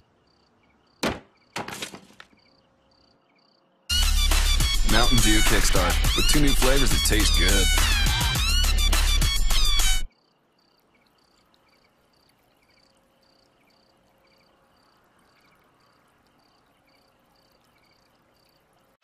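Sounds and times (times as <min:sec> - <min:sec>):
faint cricket chirps: 0:00.0 - 0:01.6, 0:02.2 - 0:03.9, 0:10.1 - 0:19.0
music: 0:03.9 - 0:10.1.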